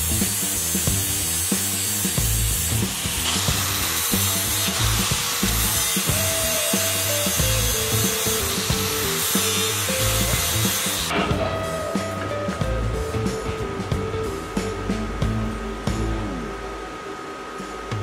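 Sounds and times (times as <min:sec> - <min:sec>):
angle grinder grinding steel: 0:00.0 - 0:13.6
background music with bass beat: 0:00.0 - 0:18.0.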